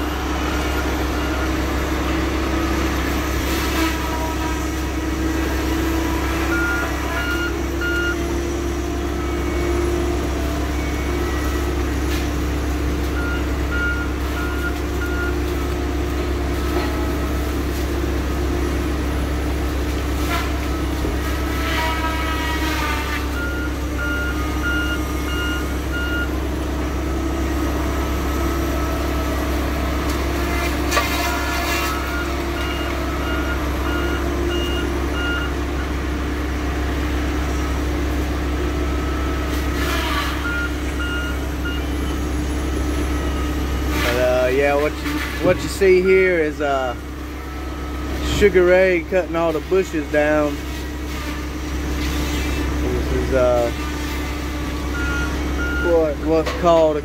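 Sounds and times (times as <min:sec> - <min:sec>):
backup alarm beeping: 0:00.0 - 0:03.0, 0:06.4 - 0:15.5, 0:23.3 - 0:27.5, 0:31.9 - 0:36.0, 0:40.4 - 0:44.3, 0:54.8 - 0:56.3
diesel engine running: 0:00.0 - 0:57.0.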